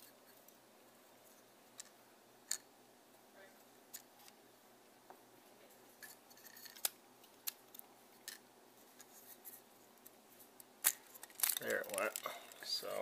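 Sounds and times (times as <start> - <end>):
plastic clicks: 10.8 - 12.7.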